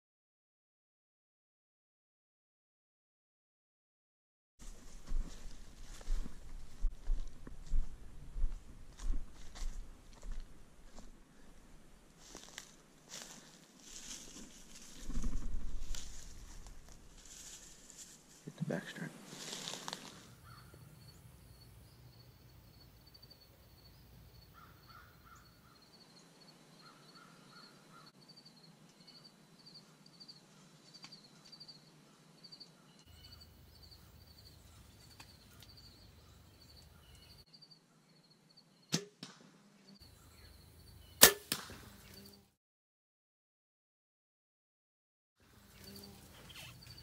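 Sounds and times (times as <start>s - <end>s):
insects chirping: 19.4s - 38.9s, 40.0s - 41.2s, 45.5s - 47.0s
bow shot cracks: 38.9s - 39.6s, 41.2s - 42.0s.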